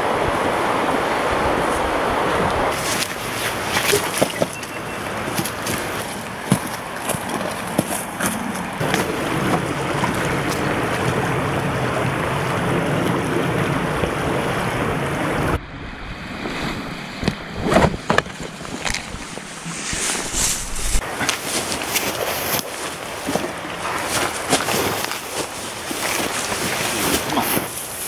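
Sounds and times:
river flowing: 0.0 - 28.0
wind: 0.0 - 28.0
rustling: 2.7 - 8.5, 17.6 - 28.0.

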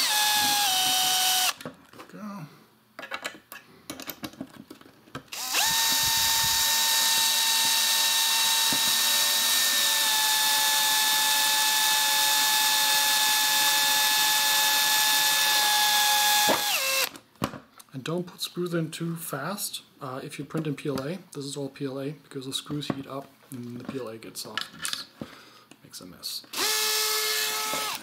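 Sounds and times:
power screwdriver whine: 0.0 - 1.6, 5.3 - 17.1, 26.5 - 28.0.

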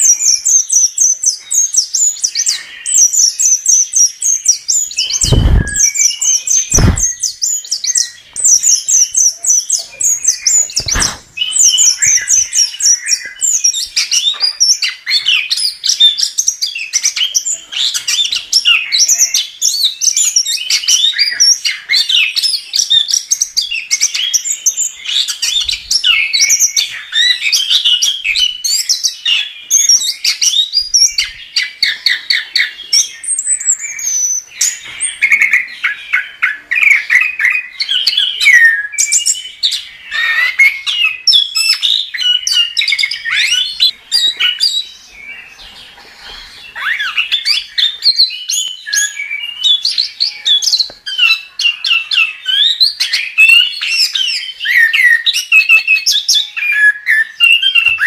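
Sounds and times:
thrush singing: 5.2 - 5.9.

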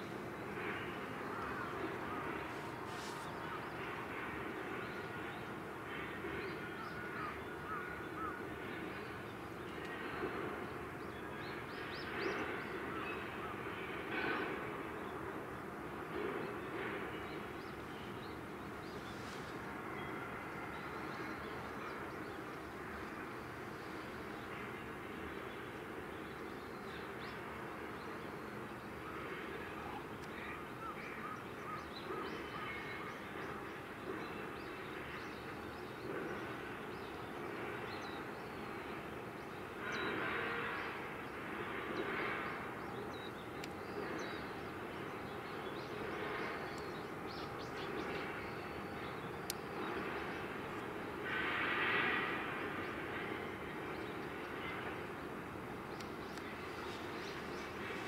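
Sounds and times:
distant mechanical drone: 0.0 - 58.0
hiss: 51.2 - 52.9.

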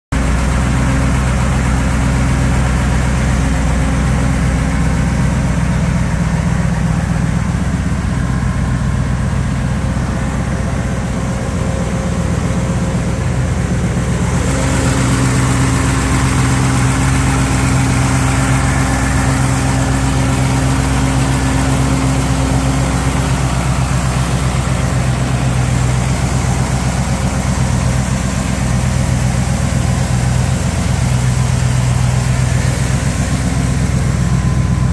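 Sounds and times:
car engine idling: 0.1 - 34.9.

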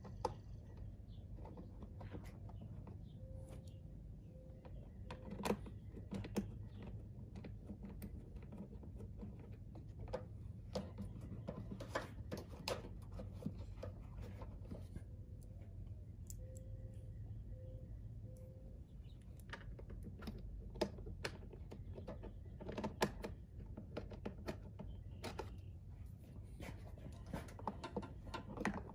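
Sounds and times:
clicks and taps of tools and plastic: 4.6 - 15.5, 19.2 - 25.7, 26.6 - 28.9.

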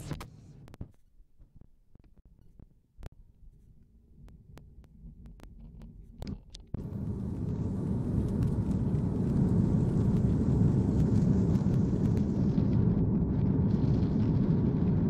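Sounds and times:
aircraft engine and gear rumble: 5.1 - 15.0.

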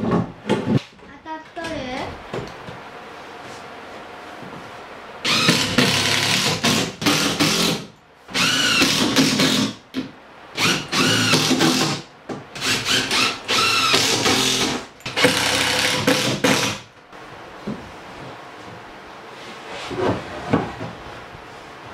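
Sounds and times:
impact driver whining and hammering: 5.3 - 9.8, 10.6 - 12.0, 12.6 - 16.8.

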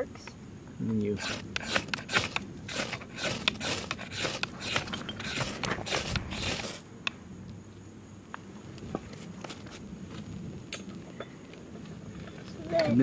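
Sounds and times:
knife scraping fire-starter rod: 1.2 - 6.9.

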